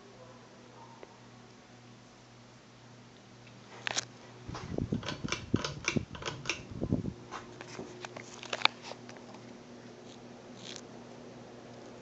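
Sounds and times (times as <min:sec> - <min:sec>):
ceiling fan motor hum: 0:00.0 - 0:12.0.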